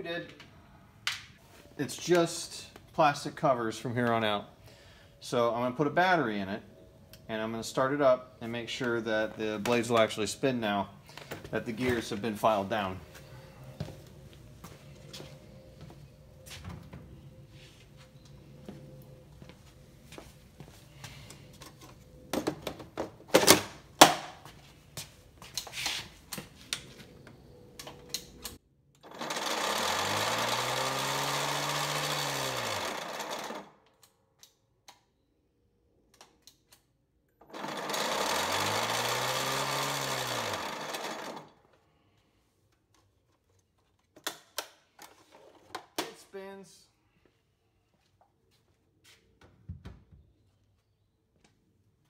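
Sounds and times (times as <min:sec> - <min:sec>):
electric mower motor and blades: 0:29.0 - 0:33.8, 0:37.4 - 0:41.6.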